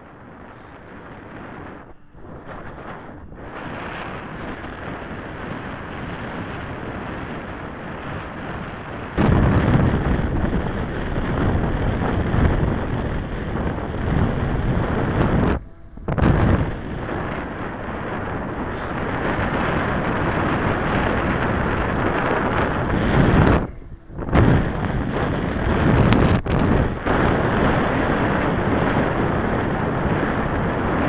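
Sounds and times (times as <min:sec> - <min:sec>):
wind buffeting microphone: 0:00.0 - 0:31.0.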